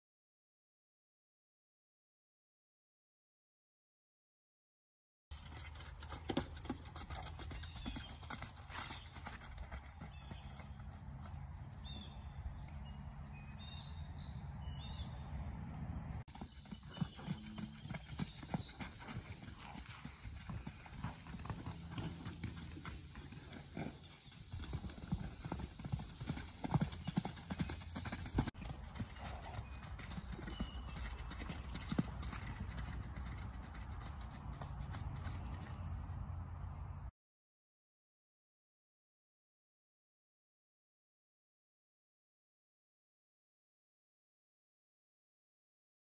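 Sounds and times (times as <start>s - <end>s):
hoofbeats on grass: 5.3s - 12.2s, 16.3s - 36.3s.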